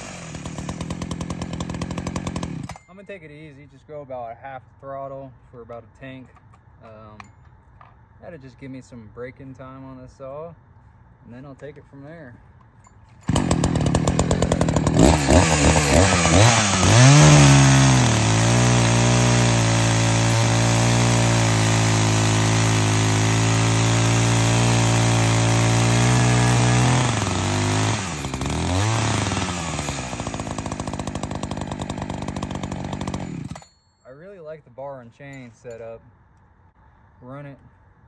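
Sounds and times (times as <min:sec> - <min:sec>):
chainsaw revving and cutting: 0:00.0 - 0:02.8, 0:13.2 - 0:33.6.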